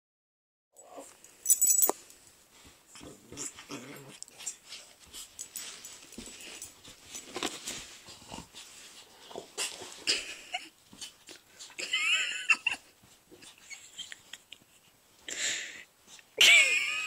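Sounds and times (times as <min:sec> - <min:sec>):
dogs scuffling: 0:02.5 - 0:10.1
dogs growling: 0:03.0 - 0:04.6.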